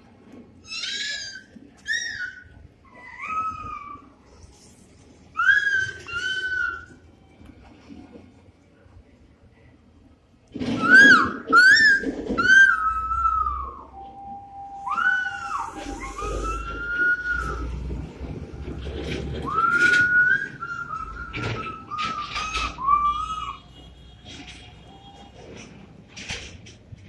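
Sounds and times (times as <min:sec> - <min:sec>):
passing truck rumble: 0:14.7 - 0:27.0.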